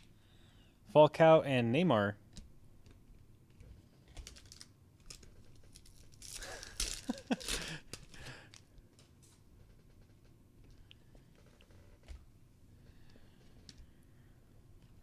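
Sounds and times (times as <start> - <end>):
foil wrapper crackling: 4.2 - 8.6.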